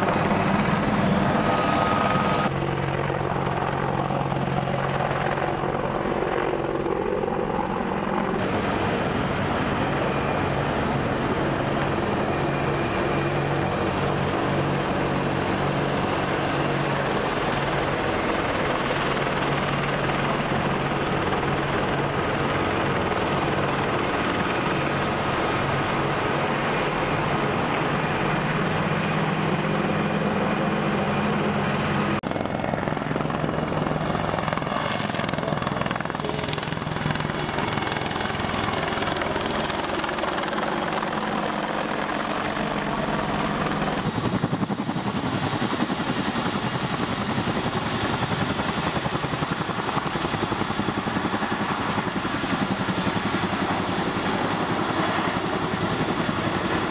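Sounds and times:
helicopter rotor beat: 0.0s - 56.9s
helicopter turbine whine: 0.0s - 56.9s.

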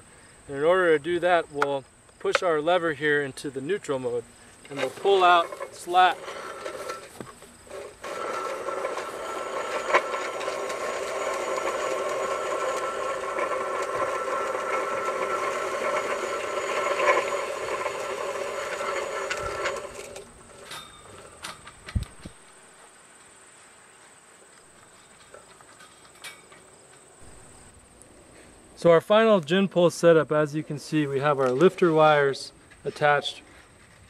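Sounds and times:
winch drum whirring: 3.6s - 22.6s.

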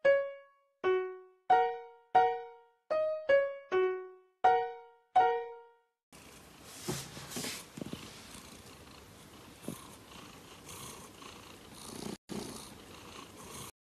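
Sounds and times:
cat purring: 7.6s - 13.7s.

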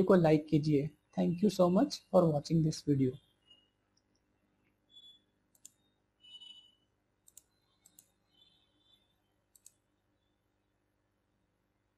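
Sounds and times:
faint sharp clicks: 7.2s - 8.1s, 9.5s - 9.8s.

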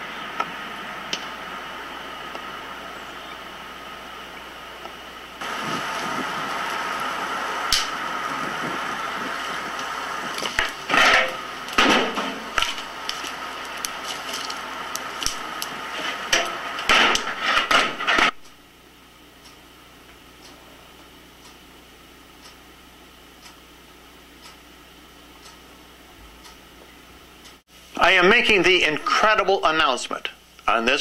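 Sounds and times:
hiss of stove boiling pot: 0.0s - 30.8s
firewood knocks and clatters: 9.8s - 18.4s.

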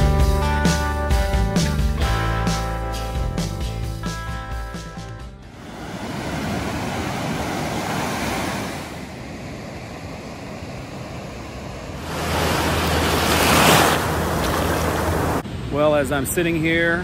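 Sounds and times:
surf washing up a beach: 5.5s - 15.4s.

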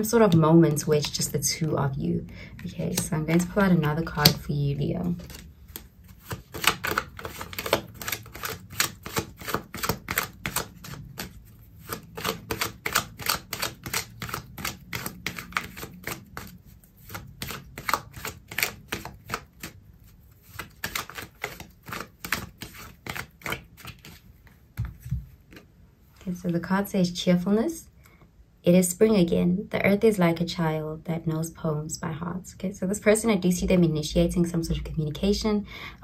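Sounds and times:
cards being shuffled: 2.6s - 25.7s.

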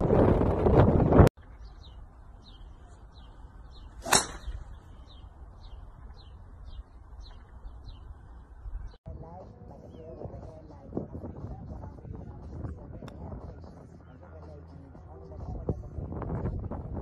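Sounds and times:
golf club striking ball: 4.0s - 4.8s.

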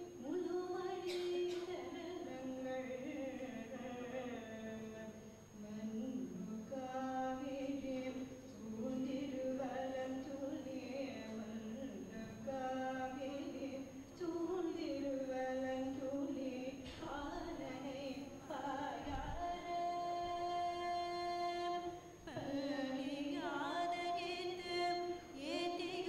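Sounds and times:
women singing a hymn unaccompanied: 0.0s - 26.0s.

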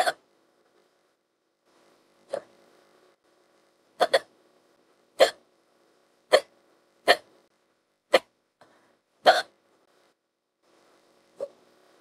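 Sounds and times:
woman hiccuping: 4.0s - 4.3s, 5.2s - 5.4s, 6.3s - 6.5s, 7.1s - 7.3s, 8.1s - 8.3s, 9.2s - 9.6s.

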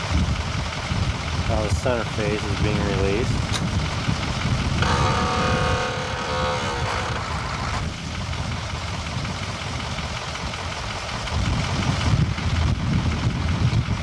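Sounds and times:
truck engine rumbling: 0.0s - 14.0s
mechanical whine: 3.2s - 8.7s.

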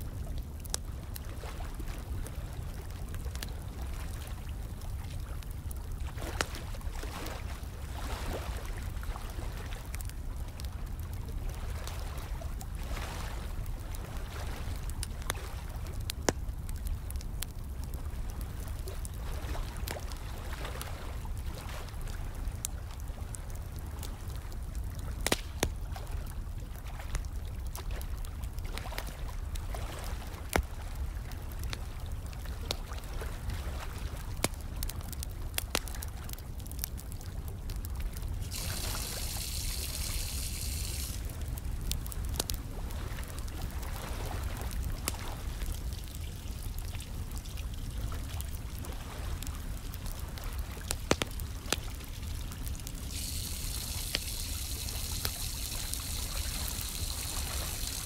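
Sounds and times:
fire crackling and popping: 0.0s - 8.0s, 8.6s - 12.8s, 13.5s - 58.0s
trickling water: 25.6s - 58.0s.

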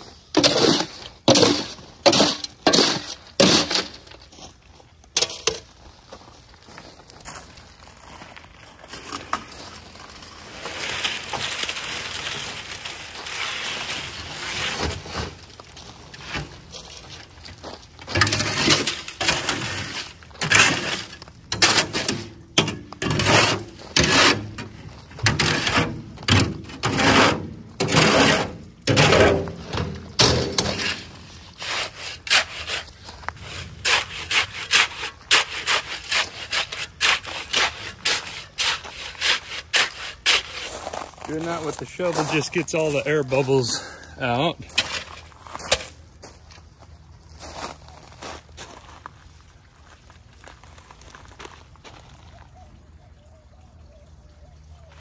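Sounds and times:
shovel scraping wheelbarrow tub: 0.0s - 4.3s, 9.0s - 46.0s
wet concrete sliding out: 0.3s - 4.2s, 9.0s - 42.4s
shovel jabbing wet concrete: 0.4s - 4.0s, 18.1s - 32.9s, 33.5s - 40.7s.

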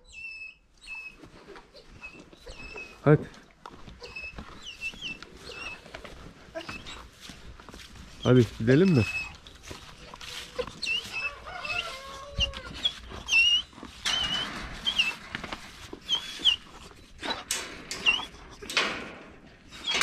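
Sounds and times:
high squeaky animal calls: 0.0s - 3.1s, 4.0s - 5.8s, 8.8s - 15.2s, 16.0s - 18.3s
rustling: 1.2s - 20.0s
drawn-out animal whine: 8.8s - 18.3s.

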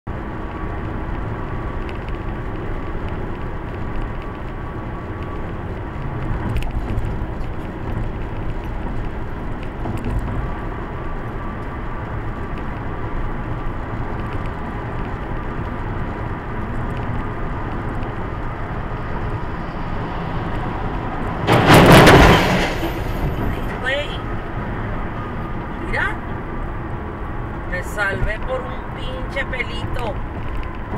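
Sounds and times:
car road and engine noise: 0.0s - 30.9s
loud crash: 21.3s - 23.8s.

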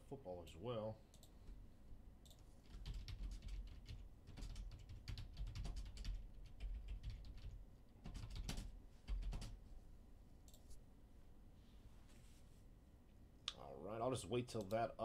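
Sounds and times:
typing on computer keyboard: 2.2s - 9.6s.

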